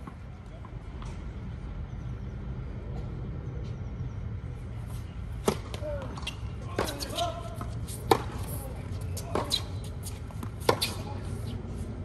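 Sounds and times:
low outdoor hum: 0.0s - 12.0s
racket hitting tennis ball: 5.4s - 11.3s.

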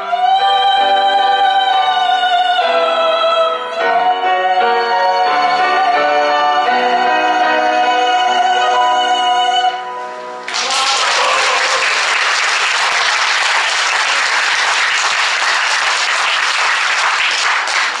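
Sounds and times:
audience applause: 10.5s - 18.0s.

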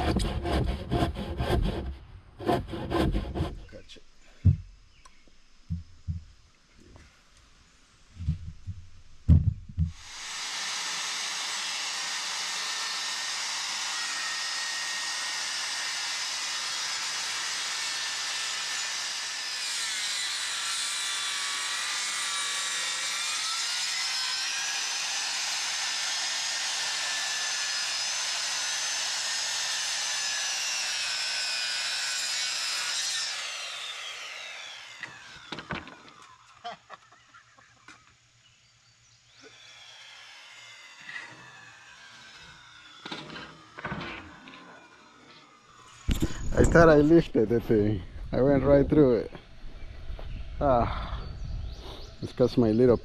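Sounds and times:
chainsaw cutting log: 0.0s - 3.8s, 8.2s - 36.7s, 39.3s - 47.0s
knocks: 4.4s - 4.7s, 8.2s - 10.0s.

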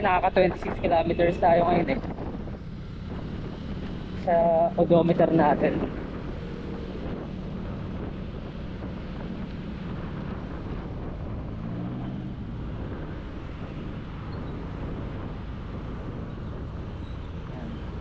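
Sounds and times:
wind rush on microphone: 0.0s - 18.0s.

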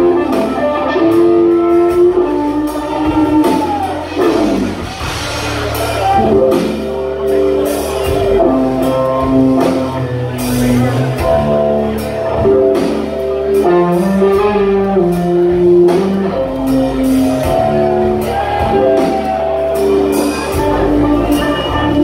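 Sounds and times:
bass guitar: 0.0s - 22.0s
drums: 0.0s - 22.0s
electric guitar lead with bends: 0.0s - 22.0s.

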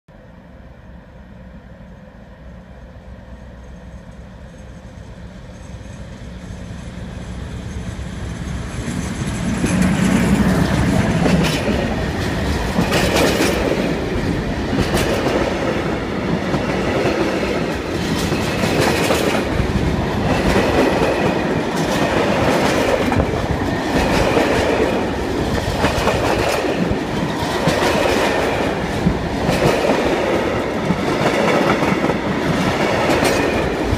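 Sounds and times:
diesel locomotive passing: 0.1s - 33.9s
wheels clicking over rail joints: 3.7s - 33.9s.

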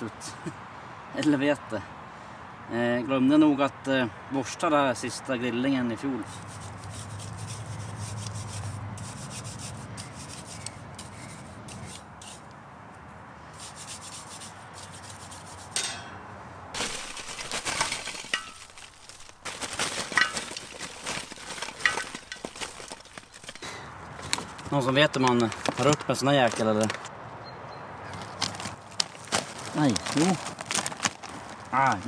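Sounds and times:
grill brush scraping grill: 6.2s - 12.5s, 13.5s - 16.1s, 16.8s - 24.6s.

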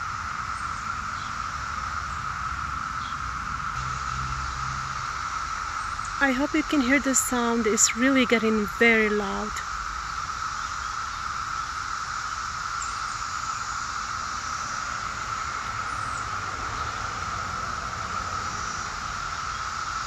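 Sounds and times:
cicadas droning: 0.0s - 20.0s.

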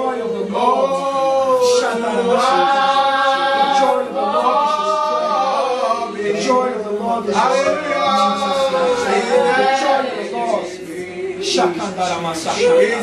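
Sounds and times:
unaccompanied voices singing: 0.0s - 13.0s.

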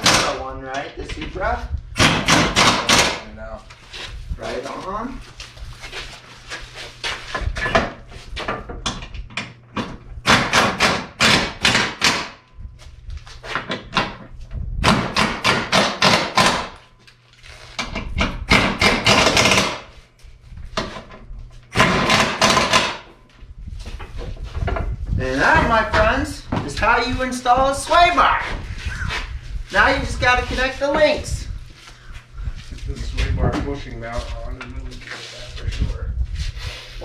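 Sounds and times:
rapid hammer strikes: 0.0s - 0.4s, 2.0s - 3.2s, 10.2s - 12.4s, 14.8s - 16.8s, 18.2s - 19.9s, 21.7s - 23.1s.

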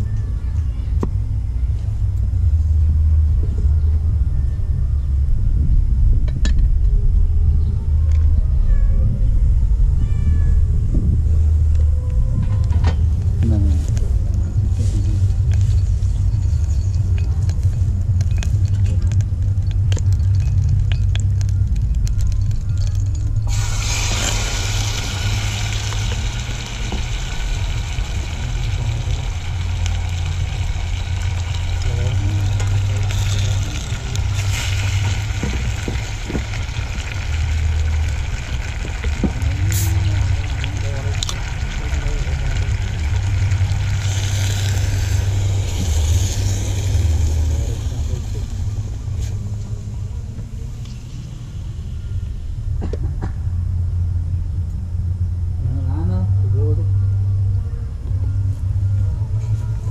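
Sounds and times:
steady low rumble: 0.0s - 59.9s
wind buffeting microphone: 2.3s - 41.7s
chicken sizzling in a pot: 23.5s - 49.4s.

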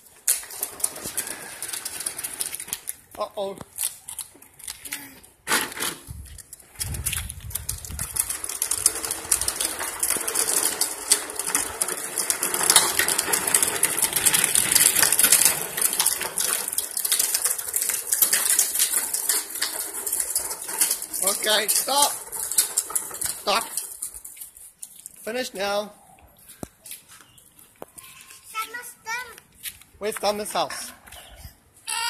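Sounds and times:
plastic toy wheels rattling on concrete: 0.0s - 25.8s, 28.0s - 32.0s.

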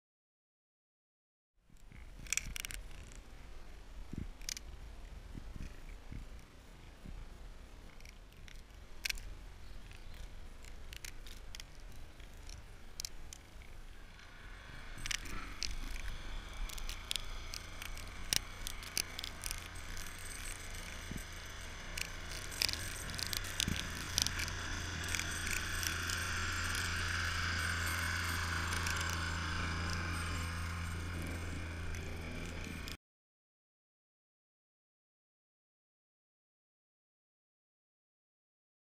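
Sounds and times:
truck engine low drone: 6.3s - 33.0s.

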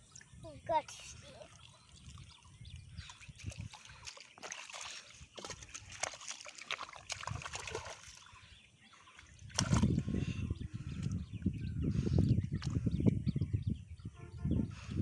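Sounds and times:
sloshing from wading: 0.0s - 11.0s
water splashing and trickling: 0.0s - 13.3s.

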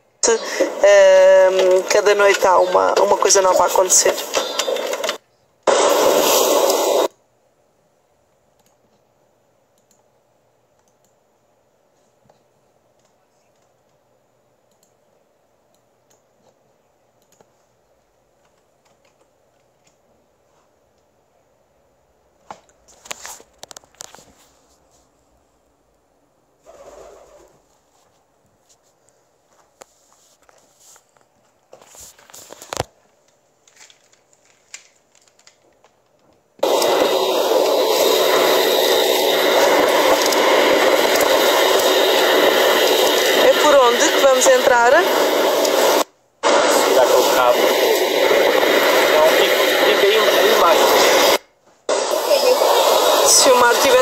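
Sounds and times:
faint clicks and crackles: 22.6s - 24.4s, 28.4s - 36.9s.

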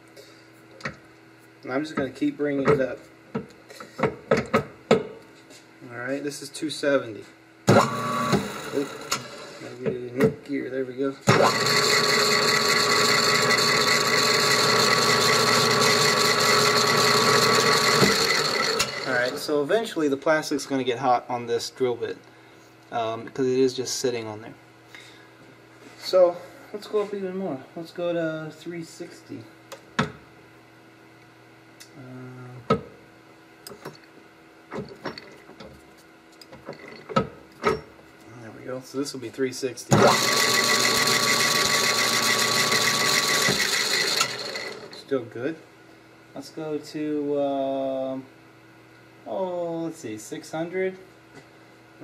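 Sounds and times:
lathe whirring with meshing gears: 7.7s - 9.6s, 11.3s - 19.5s, 39.9s - 45.1s.

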